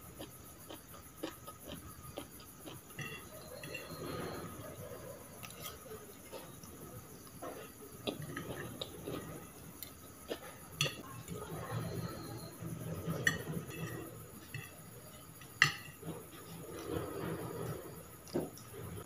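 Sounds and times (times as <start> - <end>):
cutlery clinking on ceramic plate: 3.0 - 4.0.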